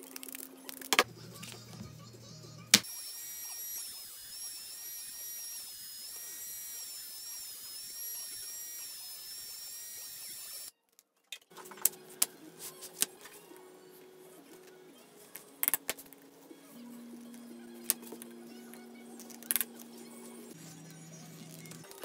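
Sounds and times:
small electric motor whining: 0:01.2 - 0:10.7.

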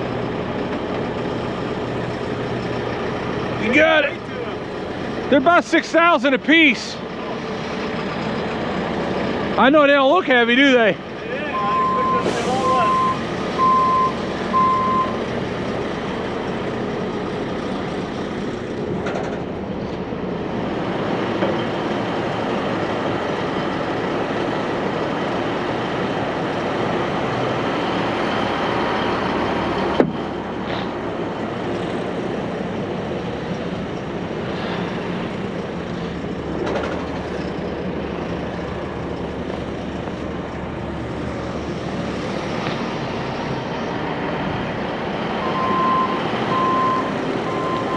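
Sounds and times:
diesel truck engine idling: 0:00.0 - 0:47.9
reversing alarm beeping: 0:11.4 - 0:15.2, 0:45.4 - 0:47.9.

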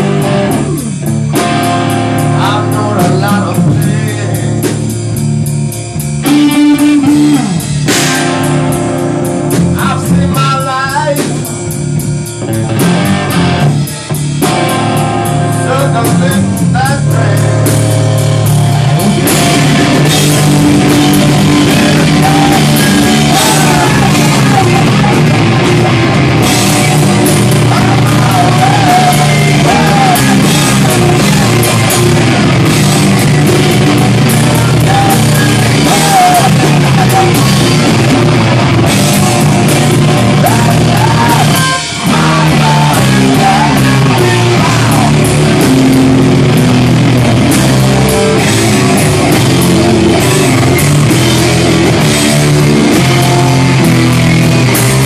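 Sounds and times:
loud rock music: 0:00.0 - 0:55.0
shouted singing: 0:20.8 - 0:32.4, 0:33.0 - 0:38.2, 0:39.8 - 0:45.7.

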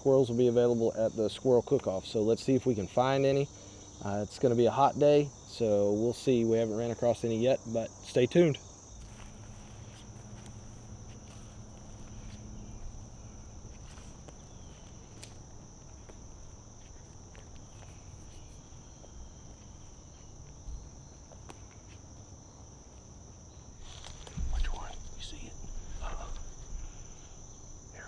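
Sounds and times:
insects chorus: 0:00.0 - 0:28.0
footsteps on dry leaves: 0:08.9 - 0:25.1.

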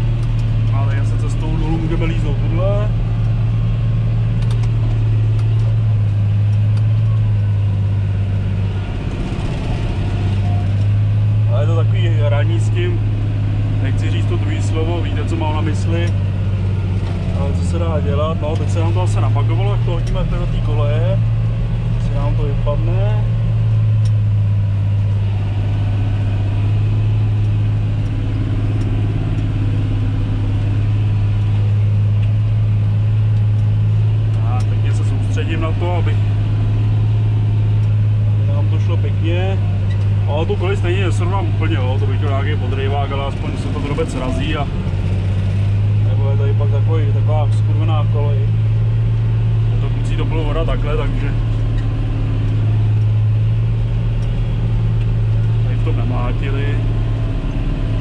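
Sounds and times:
tractor diesel engine droning: 0:00.0 - 0:58.0.

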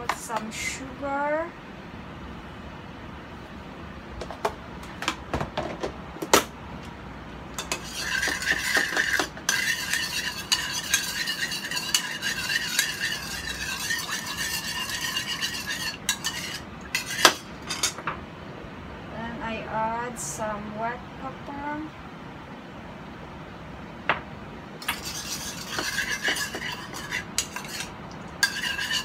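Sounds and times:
spoon stirring in ceramic bowl: 0:07.6 - 0:18.0, 0:24.8 - 0:29.0.

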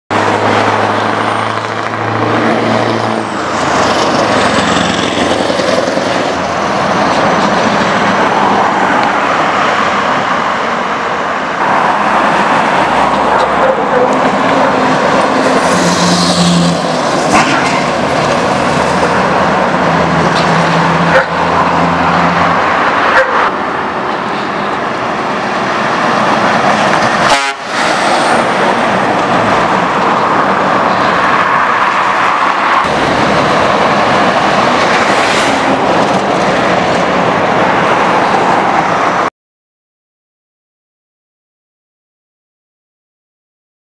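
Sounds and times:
loud truck exhaust: 0:13.2 - 0:28.8.

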